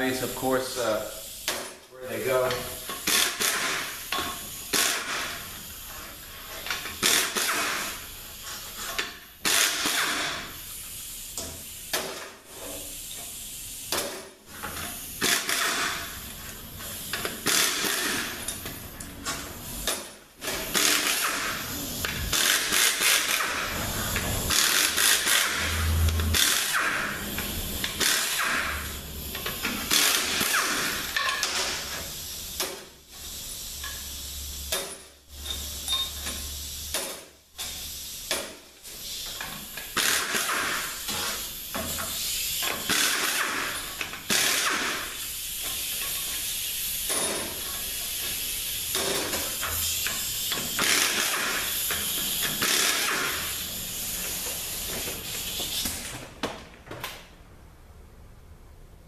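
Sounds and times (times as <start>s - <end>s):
hissing noise: 9.9s - 37.0s.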